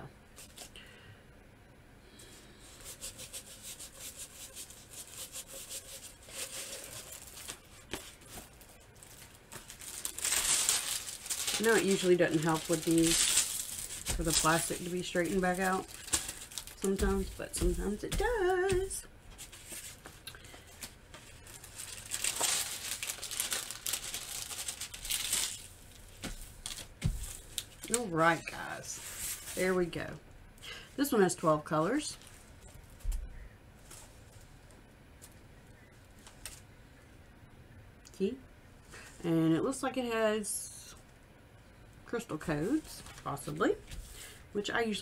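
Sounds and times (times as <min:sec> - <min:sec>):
plastic film crinkling: 0:03.0 - 0:30.0.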